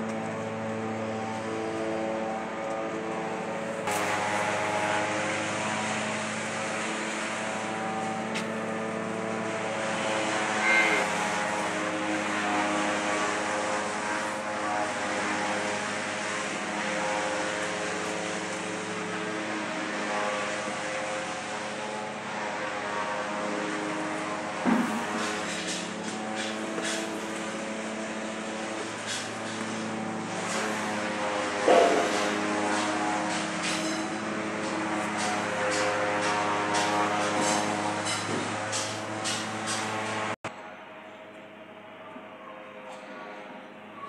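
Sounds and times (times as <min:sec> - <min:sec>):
engine droning: 0:00.0 - 0:44.0.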